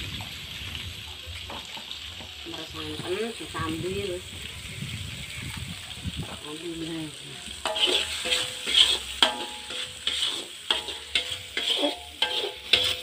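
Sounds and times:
spice paste sizzling: 0:00.0 - 0:13.0
spatula scraping metal wok: 0:06.2 - 0:13.0.

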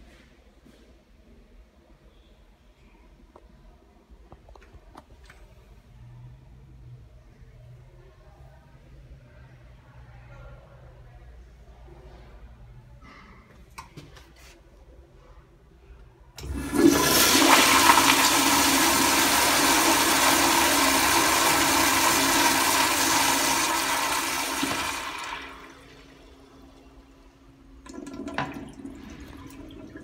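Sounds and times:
toilet flushing water rush: 0:16.4 - 0:30.0.

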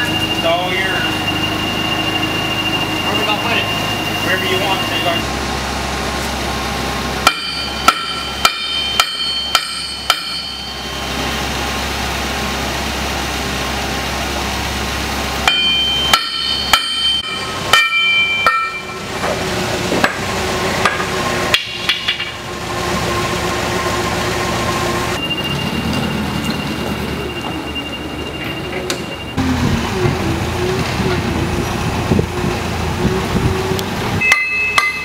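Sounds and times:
hammer blows ringing on steel: 0:07.2 - 0:11.2, 0:15.4 - 0:19.0, 0:34.2 - 0:35.0.

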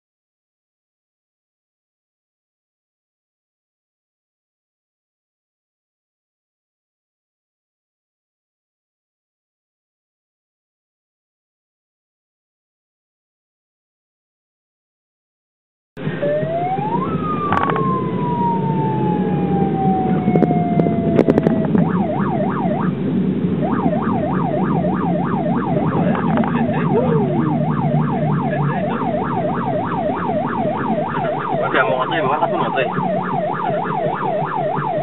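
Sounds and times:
car engine and road noise: 0:16.0 - 0:35.0
electronic siren wailing and yelping: 0:16.1 - 0:23.0, 0:23.6 - 0:35.0.

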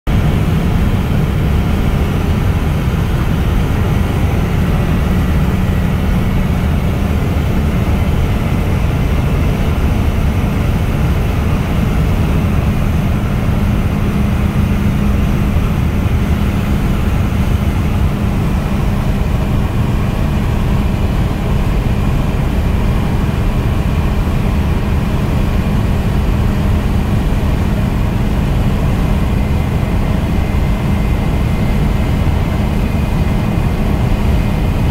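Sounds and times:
car cabin road and engine noise: 0:00.1 - 0:34.9.

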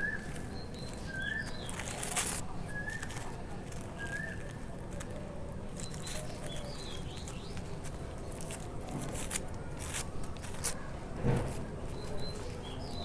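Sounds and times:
bird chirping: 0:00.0 - 0:03.2, 0:05.8 - 0:07.6, 0:11.9 - 0:13.0
plastic strip crinkling: 0:00.0 - 0:13.0.

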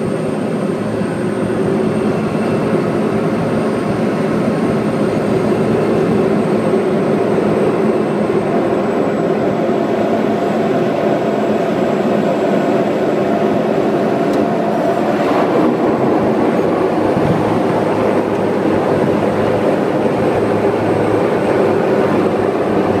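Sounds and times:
airplane engine and airflow drone: 0:00.0 - 0:23.0
low rumble: 0:14.5 - 0:20.7.

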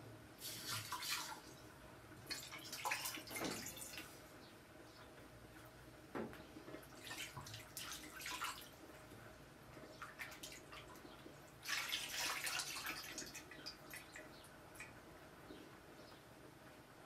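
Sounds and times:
water splashing in a basin: 0:00.5 - 0:01.6, 0:02.2 - 0:04.1, 0:06.8 - 0:08.8, 0:10.0 - 0:14.9.

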